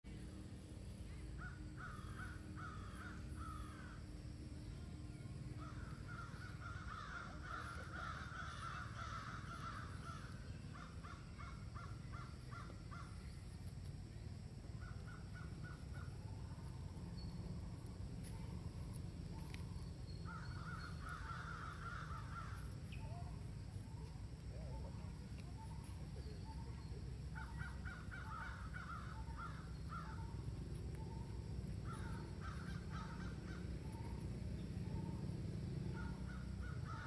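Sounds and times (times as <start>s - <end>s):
steady low background noise: 0.1s - 37.0s
crows cawing: 1.4s - 4.1s, 5.6s - 13.2s, 20.3s - 22.8s, 27.4s - 30.4s, 31.8s - 34.2s, 35.7s - 37.0s.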